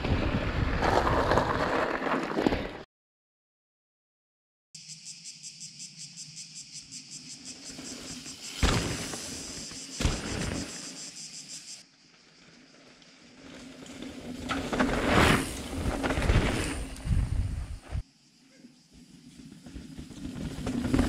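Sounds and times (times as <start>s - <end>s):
bike passing over loose stones: 0.0s - 2.8s, 12.4s - 17.6s, 19.2s - 21.0s
bike tyres rolling over rocks: 0.0s - 2.8s, 12.0s - 17.8s, 19.1s - 21.0s
shrill pulsing insect buzzing: 4.8s - 12.6s.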